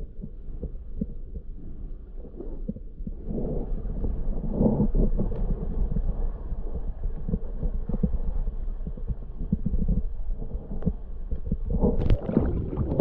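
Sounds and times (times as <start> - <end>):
muffled underwater rumble: 0.0 - 13.0.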